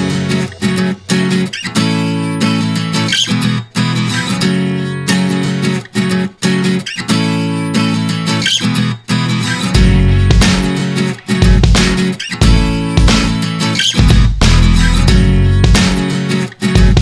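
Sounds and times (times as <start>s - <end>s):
acoustic guitar chords: 0.0s - 17.0s.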